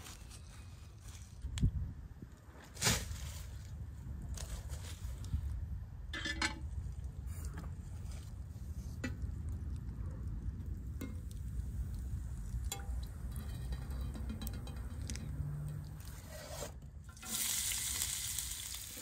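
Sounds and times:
steady low rumble: 0:05.4 - 0:16.1
cooking utensils clinking: 0:12.7 - 0:15.8.

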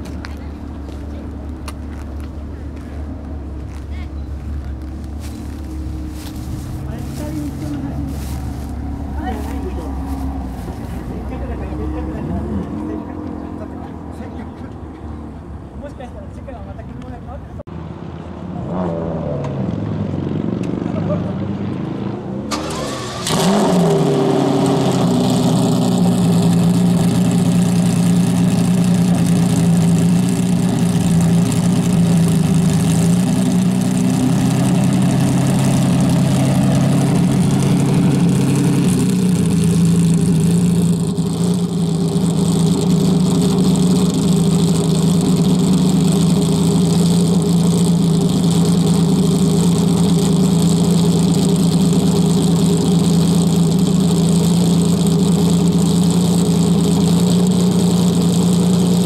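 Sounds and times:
car engine revving and idling: 0:00.0 - 0:16.1, 0:17.0 - 0:59.0.

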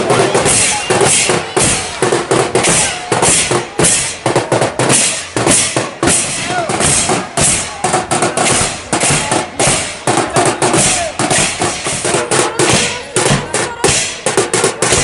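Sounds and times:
bass drum: 0:00.0 - 0:15.0
snare drums: 0:00.0 - 0:15.0
hand cymbals clashing: 0:00.4 - 0:10.0.

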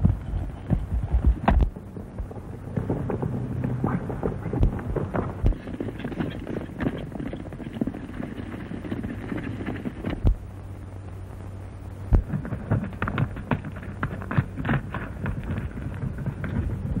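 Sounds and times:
horse hoofbeats galloping: 0:00.0 - 0:10.4, 0:12.1 - 0:17.0
film soundtrack hiss: 0:00.0 - 0:17.0
heavy thumps: 0:12.1 - 0:17.0.

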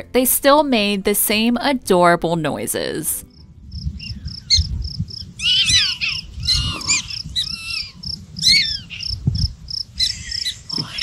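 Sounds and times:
prairie dogs chirping: 0:03.6 - 0:11.0.

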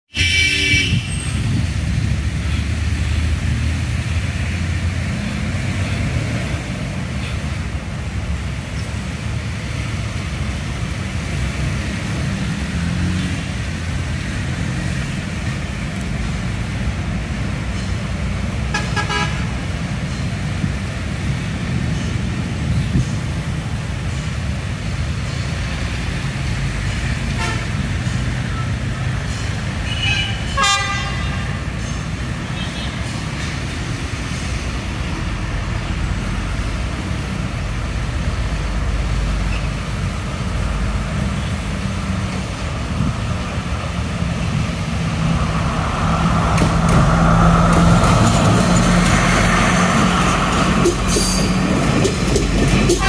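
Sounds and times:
vehicle horn toots: 0:00.1 - 0:01.3, 0:18.7 - 0:19.5, 0:27.4 - 0:27.7, 0:29.9 - 0:31.5
road traffic rumble: 0:00.1 - 0:53.0.

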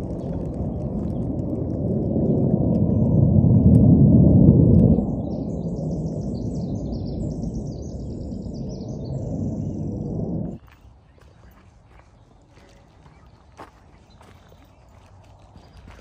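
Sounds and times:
jet aircraft roar: 0:00.0 - 0:10.6
songbird twittering: 0:04.9 - 0:16.0.

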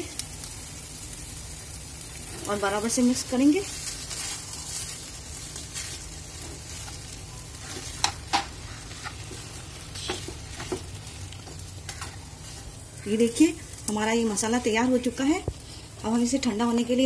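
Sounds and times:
spatula scraping in a pan: 0:02.2 - 0:13.8.

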